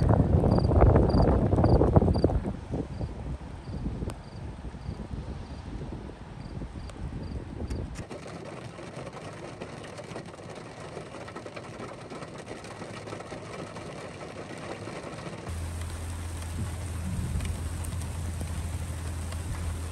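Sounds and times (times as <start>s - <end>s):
steady rain: 14.9s - 19.9s
low rumble: 15.5s - 19.9s.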